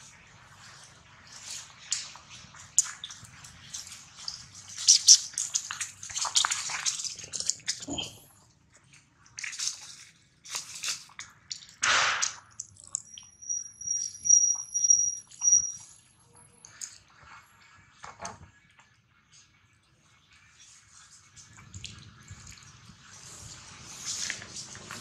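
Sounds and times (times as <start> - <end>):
monkey slurping water: 0.6 - 8.3.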